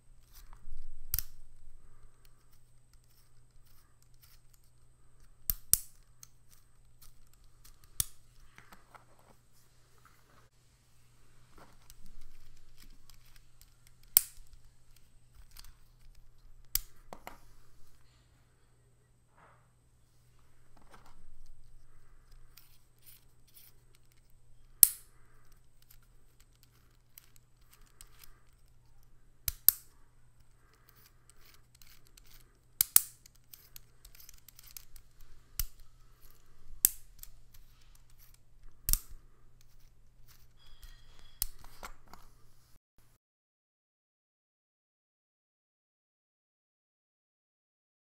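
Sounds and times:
sharp plastic clicks: 0.2s - 1.4s, 2.2s - 8.8s, 11.8s - 17.2s, 29.4s - 40.5s
plastic gears rattling: 21.0s - 28.8s, 29.5s - 41.7s.

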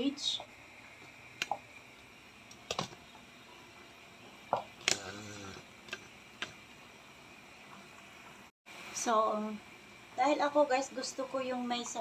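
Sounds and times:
faint steady hiss: 0.0s - 12.0s.

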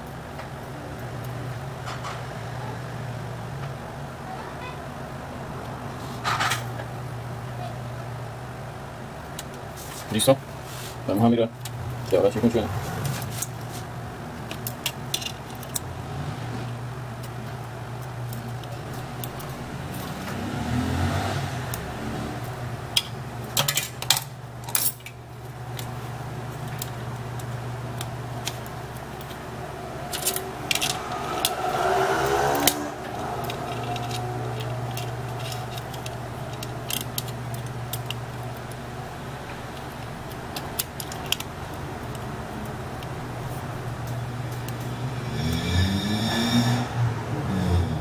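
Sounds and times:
steady low hum: 0.0s - 48.0s
phone parts clicking and scraping: 13.0s - 15.9s, 17.2s - 20.4s, 22.9s - 29.4s, 30.1s - 31.5s, 32.6s - 44.9s.

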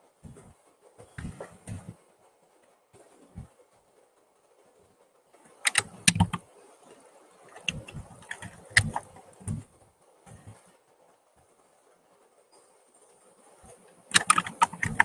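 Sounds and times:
computer keys clicking: 5.6s - 6.5s, 7.5s - 9.6s, 14.1s - 15.0s.

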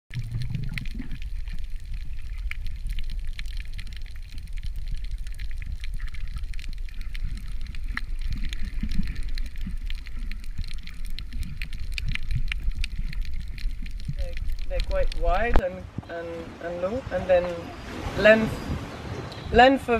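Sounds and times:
sharp clicks and crackles: 0.1s - 15.7s
low underwater rumble: 0.1s - 19.9s
soft low gurgles: 0.1s - 19.9s.

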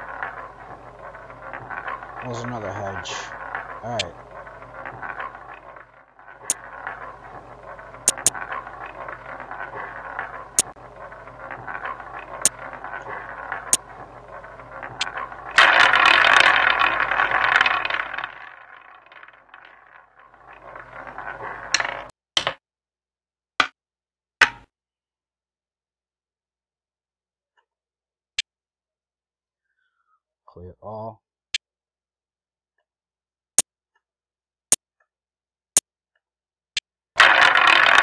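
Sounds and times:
roulette wheel rattling roll: 0.0s - 22.1s, 37.2s - 38.0s.

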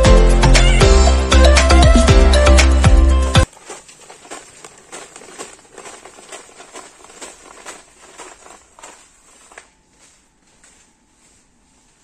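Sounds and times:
footsteps on concrete floor: 3.4s - 12.0s.

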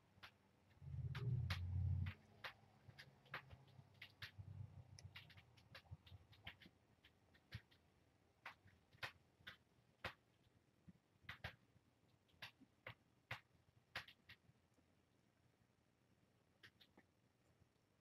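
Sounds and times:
kittens mouthing and licking clicks: 0.2s - 10.2s.

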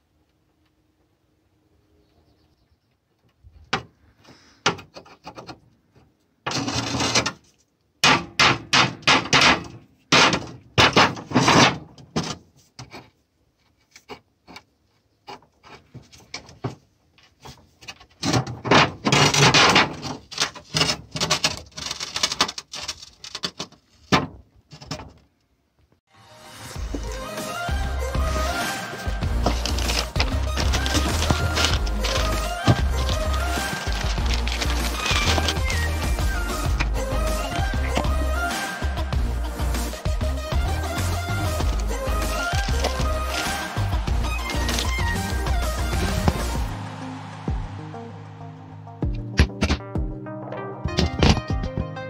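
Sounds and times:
ball joint gritty scraping and knocking: 10.9s - 25.3s, 29.3s - 37.0s, 41.4s - 46.6s.

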